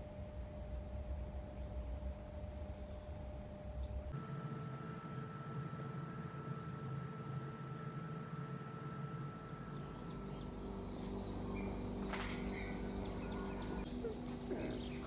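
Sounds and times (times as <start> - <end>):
steady low hum: 0.0 - 15.0
insect pulsing trill: 2.4 - 15.0
short repeated insect chirps: 9.1 - 15.0.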